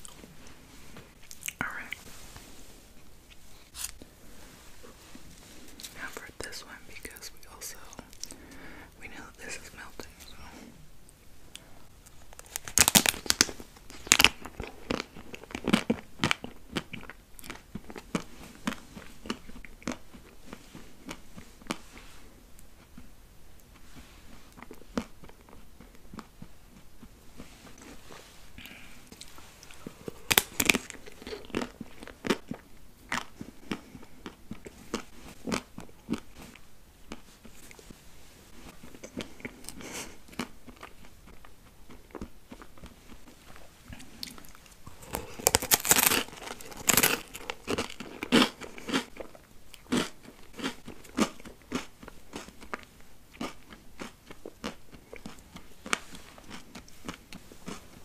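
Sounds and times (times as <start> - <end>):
ice cream cone crunching: 12.2 - 21.8, 28.7 - 37.6, 44.2 - 57.9
chewing: 14.0 - 21.9, 22.6 - 38.0, 38.7 - 58.0.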